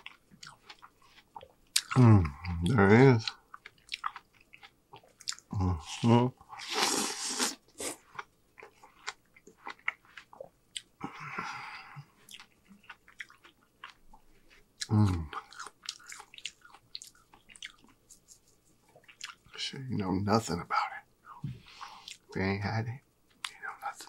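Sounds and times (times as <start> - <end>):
chewing watermelon: 0.0 - 20.1
person humming mm: 1.9 - 2.7, 14.9 - 15.3.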